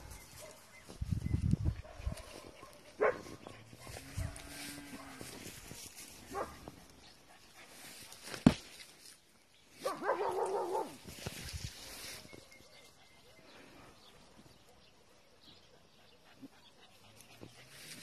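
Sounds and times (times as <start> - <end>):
dog barking: 1.8 - 5.2, 6.3 - 6.6, 9.8 - 11.0.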